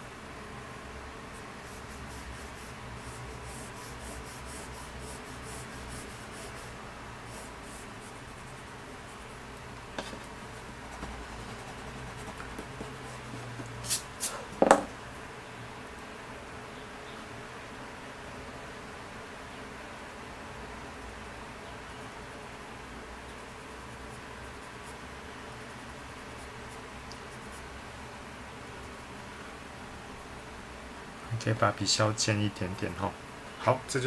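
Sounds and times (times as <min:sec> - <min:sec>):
pencil scratching on paper: 0:01.6 - 0:09.4, 0:10.0 - 0:13.7
pencil knocks: 0:10.0 - 0:10.2, 0:14.6 - 0:14.9.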